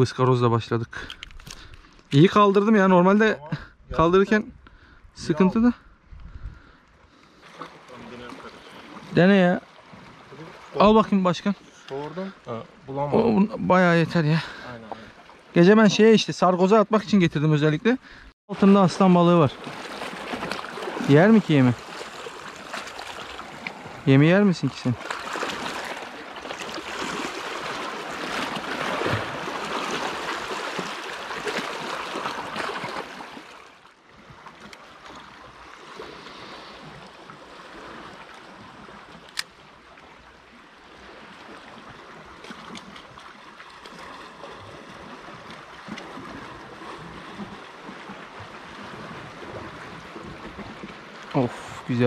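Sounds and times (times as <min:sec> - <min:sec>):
sea water sloshing: 0:06.4 - 0:15.9, 0:18.0 - 0:52.0.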